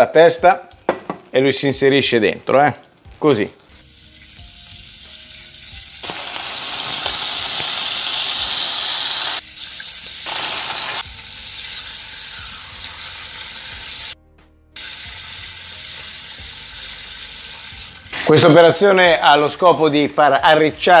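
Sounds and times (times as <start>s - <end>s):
octopus sizzling in hot oil: 3.6s - 14.2s, 14.8s - 18.2s.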